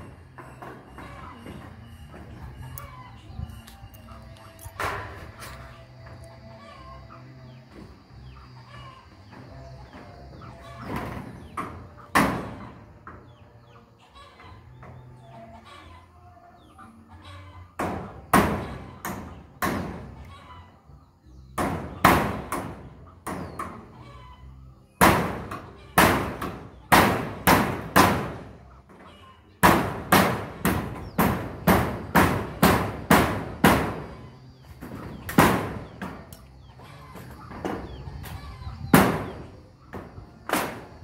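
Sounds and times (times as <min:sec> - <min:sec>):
hammer on corrugated metal sheet: 0:10.4 - 0:12.8, 0:17.8 - 0:20.3, 0:21.5 - 0:23.9, 0:25.0 - 0:28.8, 0:29.6 - 0:36.4, 0:37.2 - 0:41.0.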